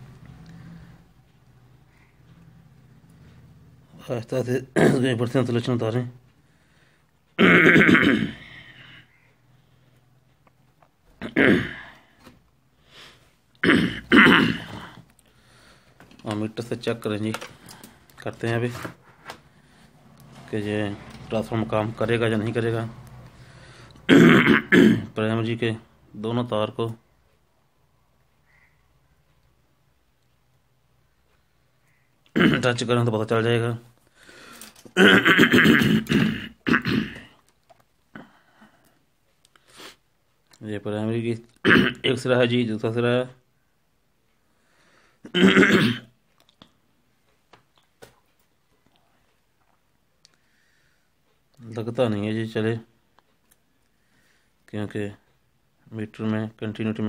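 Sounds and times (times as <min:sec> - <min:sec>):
man clearing throat and coughing: 0:04.6 - 0:05.2, 0:07.4 - 0:08.7, 0:11.2 - 0:12.0, 0:13.6 - 0:15.0, 0:24.1 - 0:25.2, 0:32.3 - 0:32.8, 0:34.9 - 0:37.4, 0:41.6 - 0:42.2, 0:45.2 - 0:46.2.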